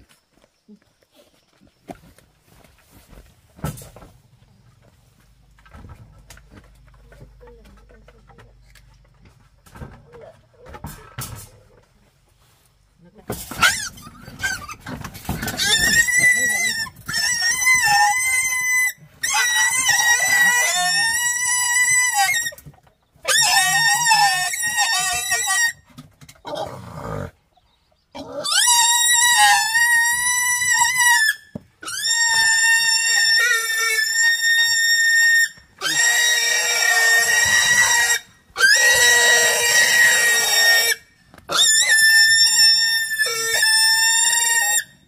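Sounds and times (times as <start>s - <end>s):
pig squealing: 13.5s - 22.6s, 23.2s - 25.8s, 28.1s - 45.0s.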